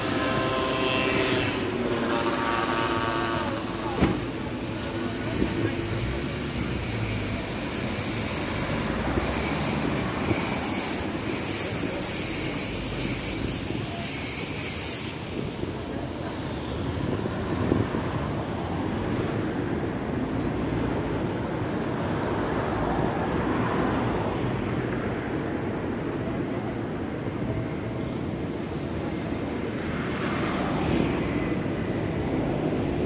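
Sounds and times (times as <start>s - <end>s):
high hissing squeal: 0.0s - 17.1s
city street traffic: 0.0s - 33.0s.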